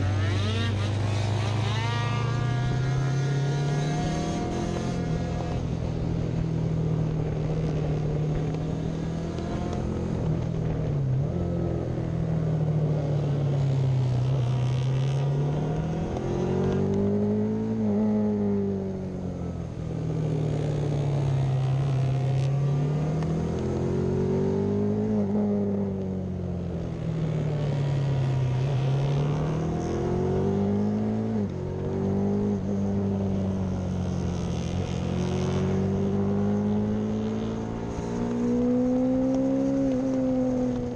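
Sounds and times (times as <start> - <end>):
racing motorcycle engine: 0.0 - 40.9.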